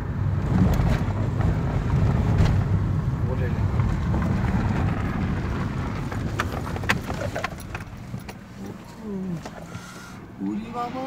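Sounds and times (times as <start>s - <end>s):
engine and tyres rumbling: 0.0s - 11.0s
sharp rattles and clicks: 3.8s - 8.8s.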